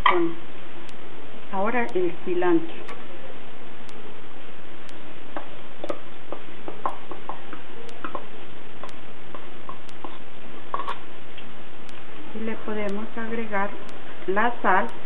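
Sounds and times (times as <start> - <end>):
sharp even ticking: 5.8 - 11.0, 11.8 - 15.0.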